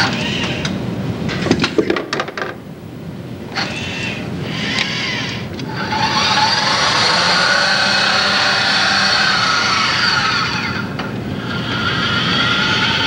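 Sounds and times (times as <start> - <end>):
mechanical hum and hiss: 0.0 - 13.0
robotic machinery whirring: 3.6 - 11.1.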